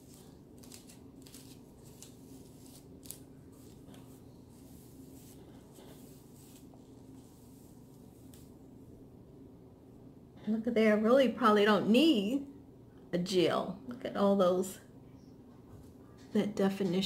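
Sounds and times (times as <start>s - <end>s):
brush drawn through hair: 0.0s - 8.6s.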